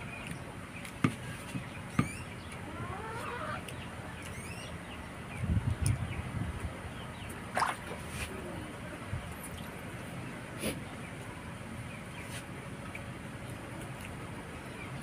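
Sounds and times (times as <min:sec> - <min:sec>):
small birds chirping: 0:00.0 - 0:15.0
chickens clucking: 0:00.1 - 0:04.5.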